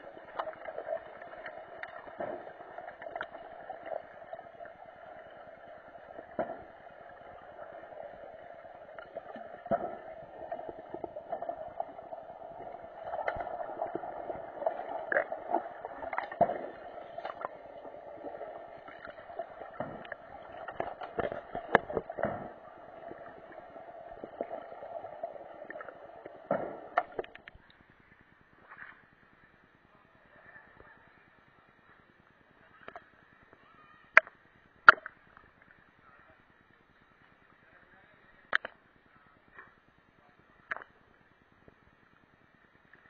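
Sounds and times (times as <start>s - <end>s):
underwater hum: 0.0s - 39.8s
underwater clicks and knocks: 0.2s - 27.6s.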